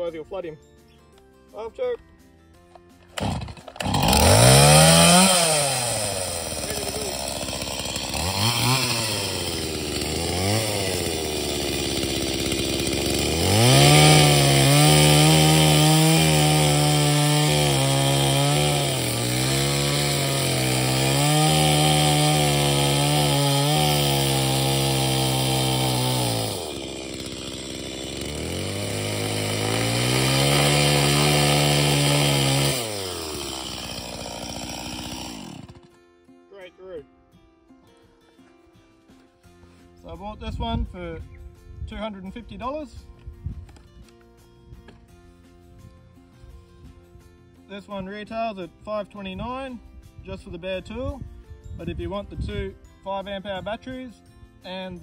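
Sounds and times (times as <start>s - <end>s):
chainsaw revving and cutting wood: 3.0s - 36.1s.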